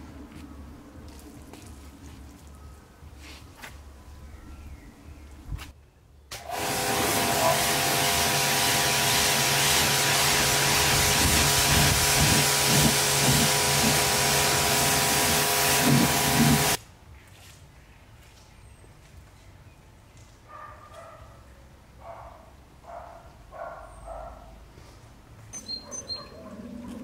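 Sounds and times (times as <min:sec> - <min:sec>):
pressure washer machine hum: 0:06.4 - 0:16.8
water jet hissing: 0:06.4 - 0:16.8.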